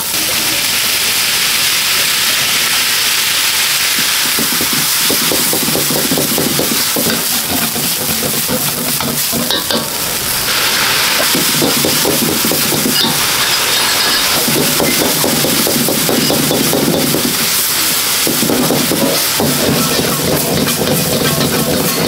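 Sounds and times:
food sizzling in a wok: 0.0 - 22.0
metal ladle scraping pan: 9.0 - 17.4.

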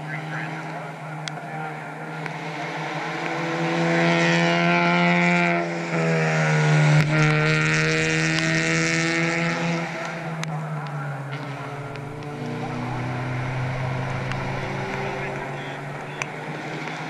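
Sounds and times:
race car engine revving past: 0.0 - 17.0.

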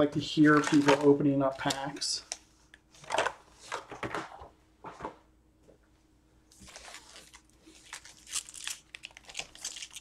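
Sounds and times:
wrappers crinkling: 0.3 - 2.3, 6.6 - 10.0.

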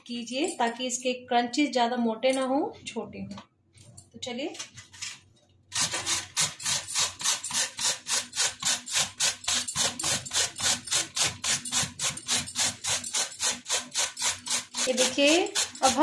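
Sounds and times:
gourd rasping on a metal grater: 5.8 - 16.0.

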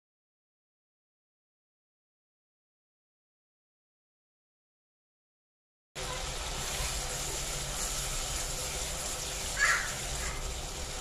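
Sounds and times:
onion frying in oil: 6.0 - 11.0.

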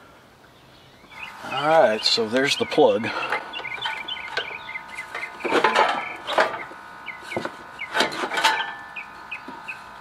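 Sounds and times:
heavy metal parts scraping: 2.3 - 8.9.

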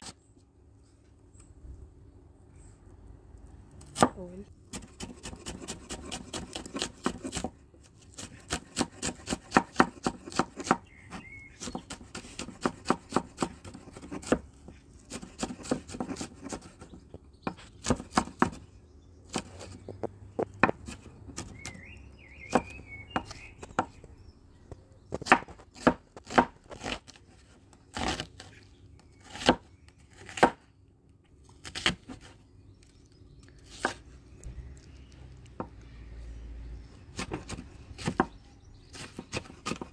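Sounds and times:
knife chopping on cutting board: 4.0 - 7.6, 8.2 - 10.8, 11.6 - 14.4, 15.1 - 18.6, 25.2 - 27.0, 29.3 - 30.6.

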